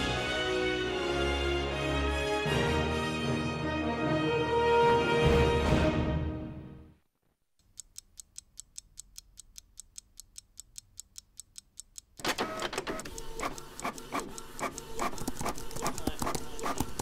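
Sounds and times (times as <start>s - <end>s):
rapid ticking: 7.6s - 12.2s, 13.0s - 17.0s
busy clatter of ticks: 14.6s - 17.0s.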